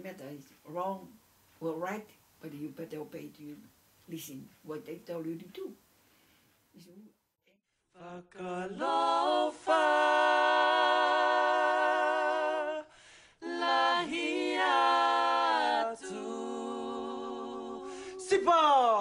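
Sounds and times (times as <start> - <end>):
singer breathing: 6.0 - 6.6, 12.9 - 13.4, 17.8 - 18.2.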